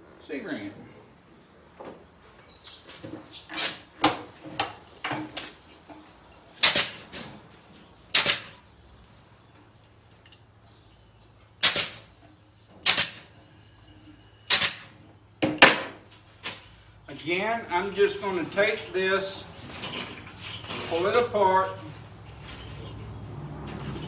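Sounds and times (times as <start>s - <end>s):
pneumatic ring gun snaps: 6.6s - 7.0s, 8.1s - 8.6s, 11.6s - 12.1s, 12.8s - 13.3s, 14.5s - 14.9s.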